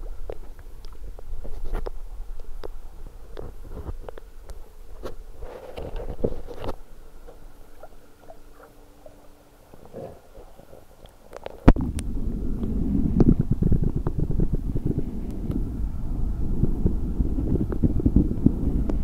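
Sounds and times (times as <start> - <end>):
underwater gurgling: 0.0 - 19.0
water sloshing: 3.1 - 11.8.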